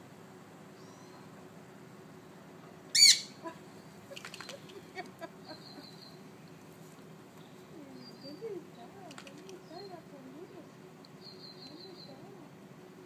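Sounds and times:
parrot squawk: 3.0s - 3.4s.

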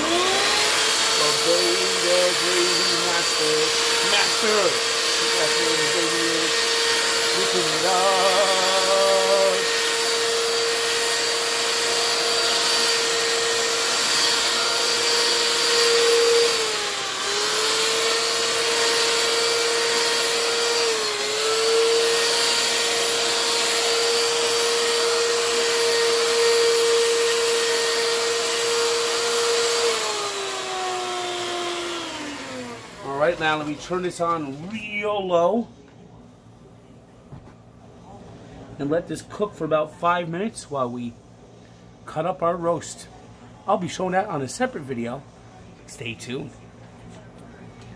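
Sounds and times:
electric hand mixer whining: 0.0s - 35.2s.

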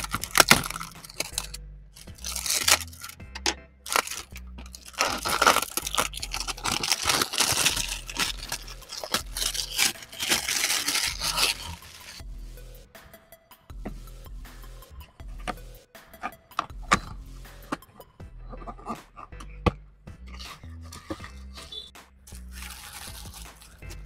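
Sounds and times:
packaging crinkling and tearing: 0.0s - 3.2s, 3.9s - 12.2s, 22.3s - 23.8s
background music with bass line: 0.0s - 24.0s.

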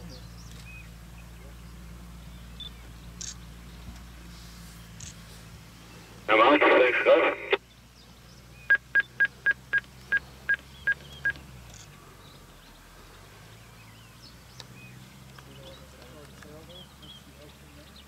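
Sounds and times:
short electronic beeps: 8.7s - 10.6s.

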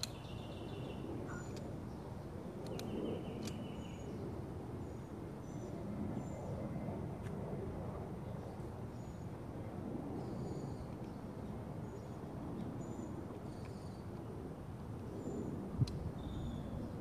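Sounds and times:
small birds chirping: 0.0s - 4.2s
outdoor background noise: 0.0s - 17.0s.

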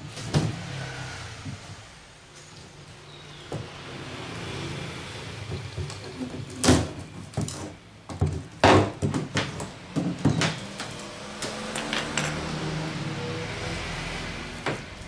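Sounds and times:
wood knocking and cracking: 5.5s - 10.6s.

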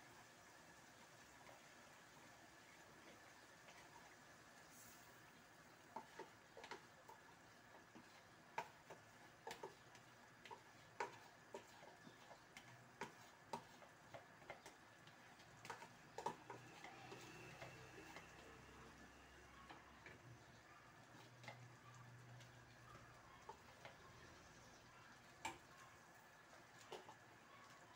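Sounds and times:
spoon scraping and tapping a tub: 5.9s - 20.3s.

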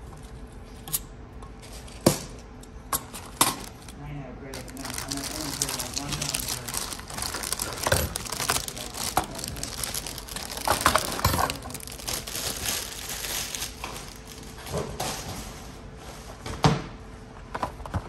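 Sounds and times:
plastic wrap crinkling: 3.2s - 3.9s, 4.5s - 14.9s.

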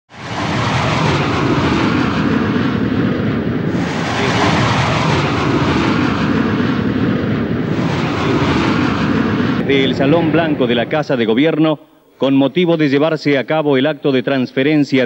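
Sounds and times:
jet airliner taking off: 0.1s - 12.2s.

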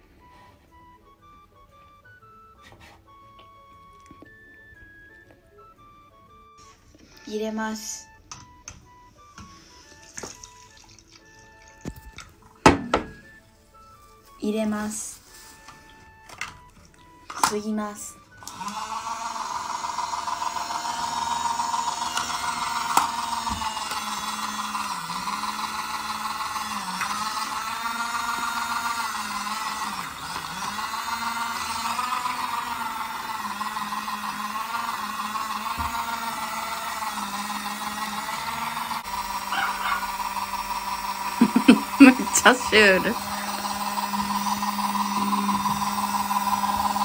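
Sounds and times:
small motor whirring: 9.2s - 12.2s, 18.3s - 47.0s.

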